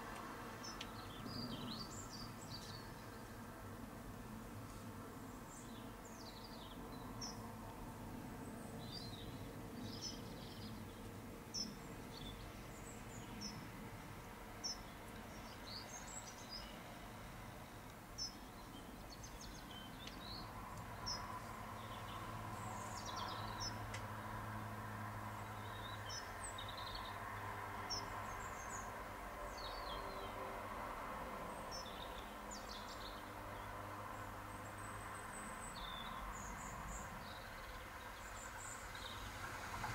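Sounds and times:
small birds chirping: 0:00.5 - 0:03.3, 0:08.7 - 0:17.0, 0:17.6 - 0:24.5, 0:25.2 - 0:30.4, 0:31.6 - 0:39.5.

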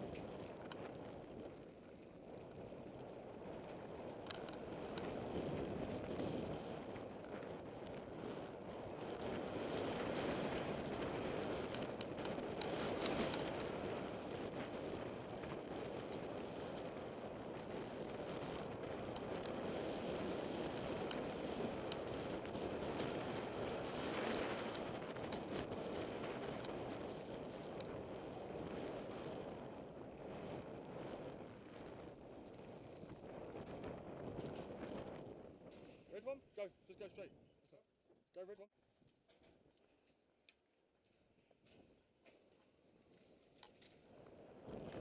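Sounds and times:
bike clicks and rattles: 0:00.0 - 0:29.5, 0:39.0 - 0:45.0
wind rushing over microphone: 0:00.0 - 0:37.4, 0:44.0 - 0:45.0.

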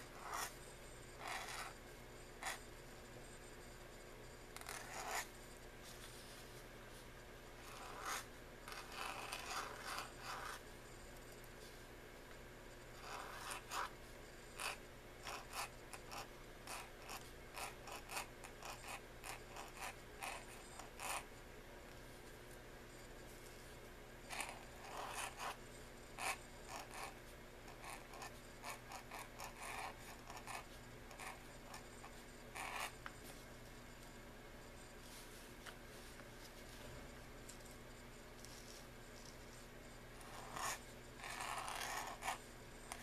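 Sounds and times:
pen nib scratching on paper: 0:00.0 - 0:01.8, 0:02.4 - 0:02.7, 0:04.6 - 0:05.4, 0:07.6 - 0:10.7, 0:12.9 - 0:21.3, 0:24.2 - 0:33.2, 0:38.4 - 0:43.0.

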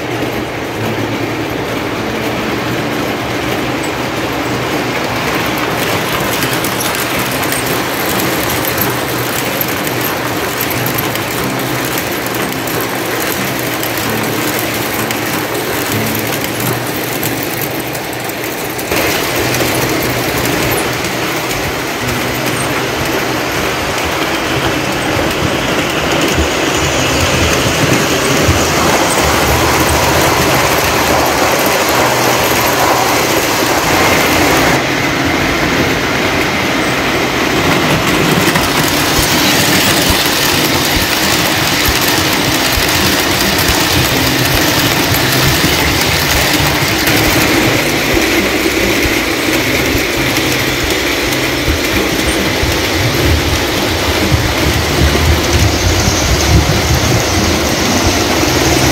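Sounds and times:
model train wheels rolling on track: 0:00.0 - 0:58.9.

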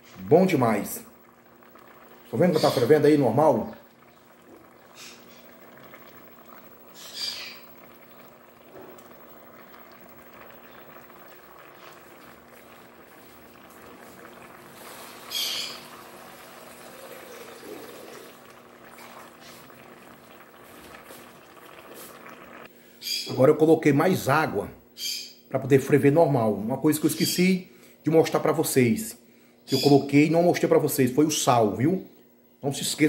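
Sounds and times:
sauce bubbling in a pot: 0:00.0 - 0:22.8
hissing sputters: 0:10.9 - 0:22.7.

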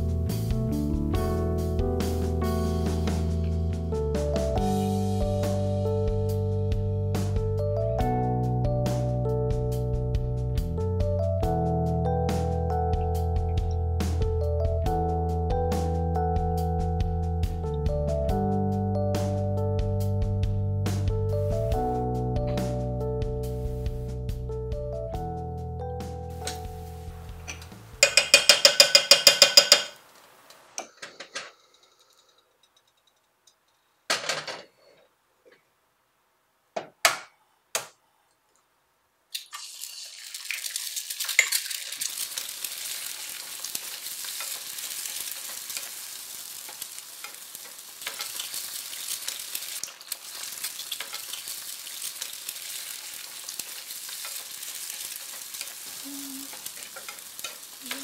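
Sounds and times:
kitchen utensils clinking: 0:27.5 - 0:30.0
food sizzling in a frying pan: 0:39.4 - 0:58.0.

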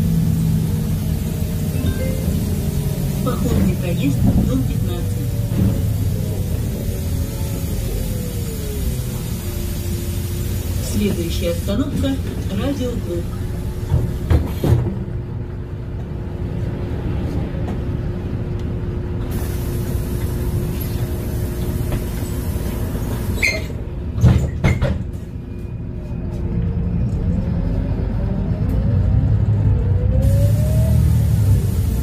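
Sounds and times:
bus engine rumble and whine: 0:00.0 - 0:32.0
knocks inside bus: 0:13.9 - 0:15.0.

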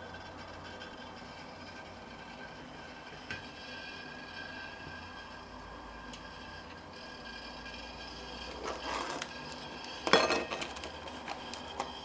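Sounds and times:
aluminium foil crinkling: 0:08.8 - 0:12.0.

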